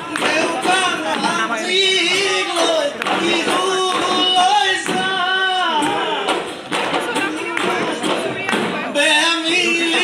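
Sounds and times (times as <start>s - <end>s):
men singing folk song: 0.0s - 6.6s, 8.8s - 10.0s
drum strokes: 0.0s - 10.0s.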